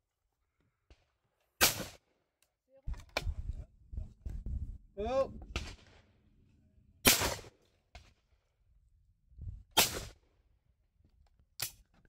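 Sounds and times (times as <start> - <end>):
shotgun shots: 1.6 - 2.0, 7.0 - 7.5, 9.8 - 10.2.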